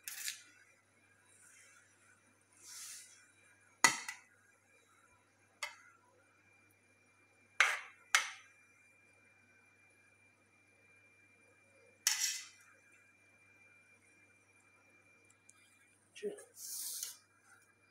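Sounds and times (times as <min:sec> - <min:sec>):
spoon scraping rice: 0:00.0 - 0:00.5, 0:07.6 - 0:08.4, 0:12.1 - 0:12.6.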